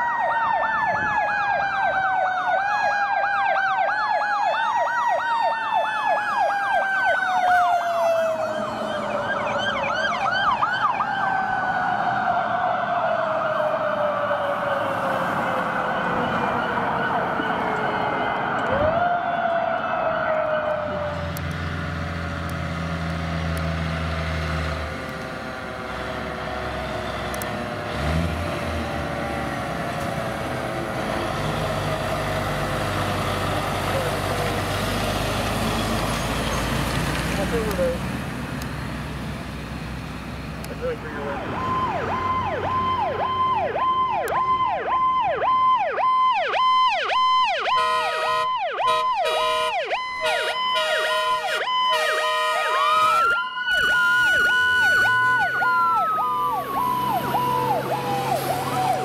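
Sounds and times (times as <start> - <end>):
electronic siren yelp: 0.0 - 21.4, 40.8 - 59.0
mechanical siren wail: 0.0 - 22.6, 41.2 - 59.0
low horn blast: 47.7 - 53.3.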